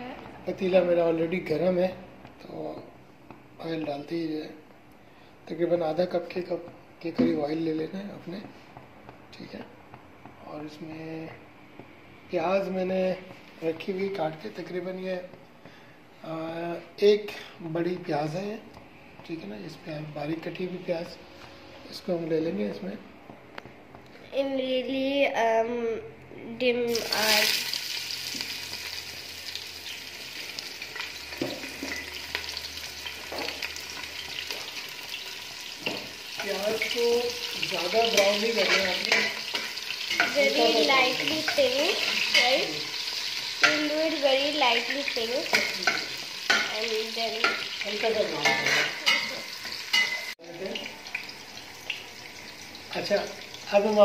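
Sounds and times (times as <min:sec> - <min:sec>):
onion sizzling in oil: 0:26.9 - 0:54.0.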